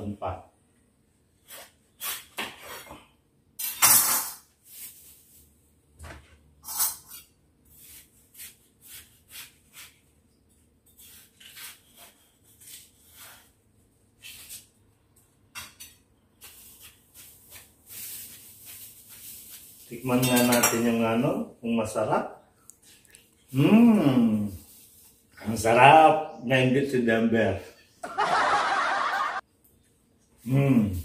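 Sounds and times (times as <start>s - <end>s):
knife cutting watermelon: 1.4s - 3.0s, 6.7s - 14.8s.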